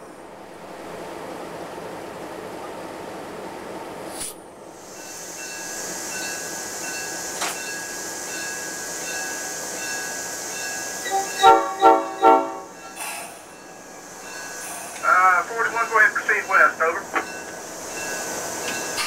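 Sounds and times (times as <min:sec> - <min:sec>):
locomotive bell ringing: 0:05.0 - 0:19.0
locomotive cab noise: 0:05.4 - 0:19.0
short horn blasts: 0:11.1 - 0:12.7.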